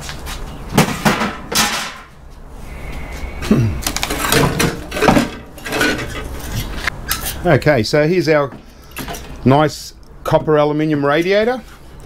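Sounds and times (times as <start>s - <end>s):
metallic clattering and scraping: 3.8s - 7.5s.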